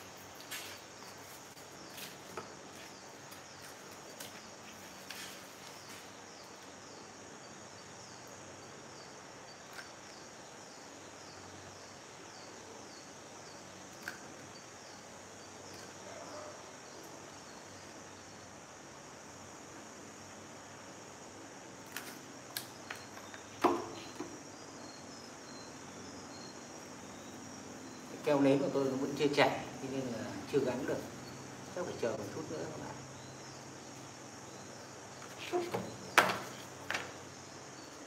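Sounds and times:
faint steady hiss: 0:00.0 - 0:38.0.

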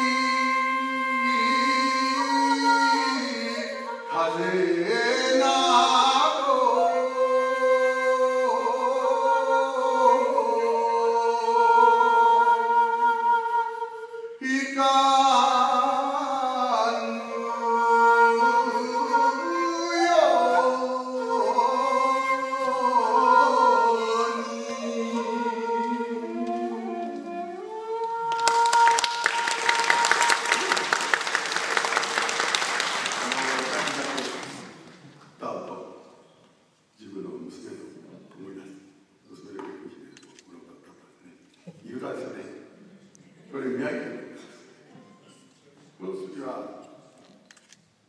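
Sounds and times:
bamboo flute: 0:00.0 - 0:14.4, 0:17.2 - 0:30.8
man singing folk song: 0:14.4 - 0:27.4.

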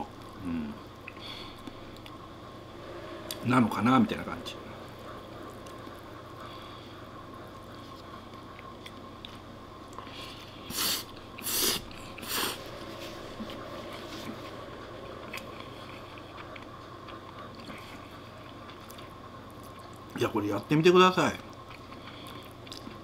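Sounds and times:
quiet chewing: 0:01.0 - 0:02.2, 0:07.7 - 0:12.6, 0:15.2 - 0:20.1, 0:21.5 - 0:23.0
person slurping spaghetti: 0:10.7 - 0:12.6.

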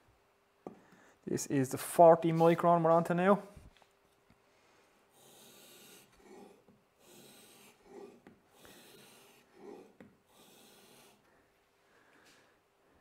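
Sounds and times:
blade rasping on abrasive film: 0:05.2 - 0:11.3.

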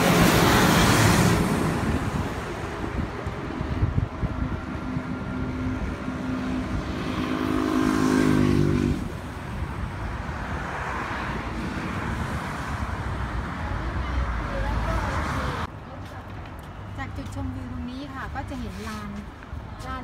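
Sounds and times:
passing vehicle engine hum: 0:00.0 - 0:15.7
wind noise: 0:00.0 - 0:15.7
steady traffic: 0:00.0 - 0:20.0.

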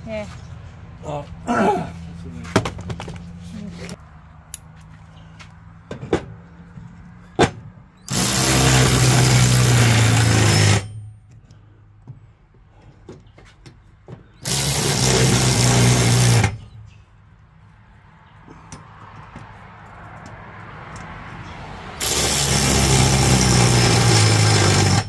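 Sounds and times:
cordless electric ratchet running: 0:08.1 - 0:10.9, 0:14.4 - 0:16.5, 0:22.0 - 0:25.0.

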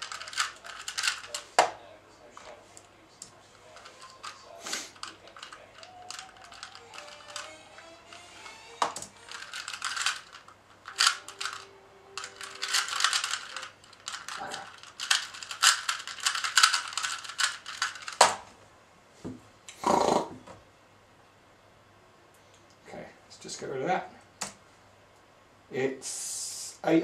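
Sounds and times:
speed cube plastic clicking: 0:00.0 - 0:01.5, 0:05.0 - 0:07.5, 0:08.8 - 0:11.6, 0:12.2 - 0:18.4.

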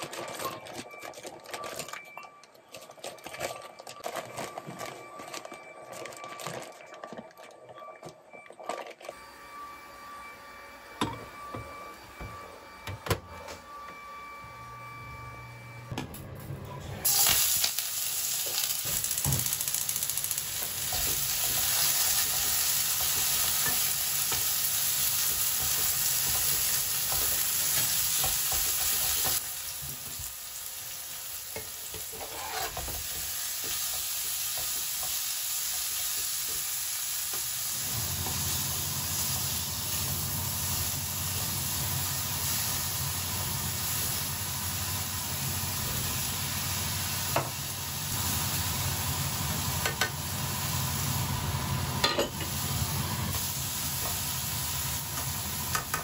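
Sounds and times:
food sizzling in a pan: 0:17.0 - 0:56.0
spatula scraping a pan: 0:31.6 - 0:33.0.

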